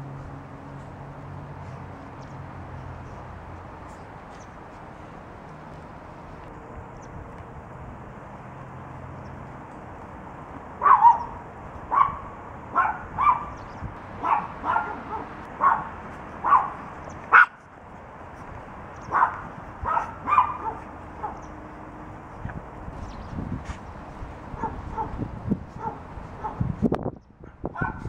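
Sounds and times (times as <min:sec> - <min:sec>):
puppies yapping: 0:10.8 - 0:17.7, 0:19.0 - 0:21.6, 0:25.8 - 0:26.6.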